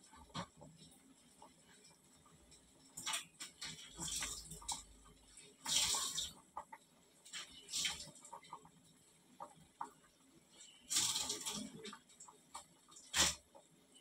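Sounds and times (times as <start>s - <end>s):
broth boiling and bubbling: 0.0s - 14.0s.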